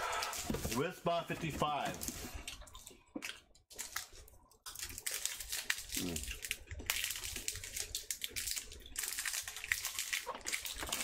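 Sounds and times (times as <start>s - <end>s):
plastic wrapper crinkling: 3.7s - 11.0s.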